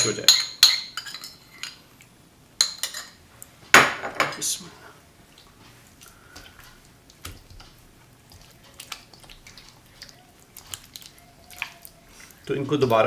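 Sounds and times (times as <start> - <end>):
wet squishing of kneaded meat: 4.9 - 13.0.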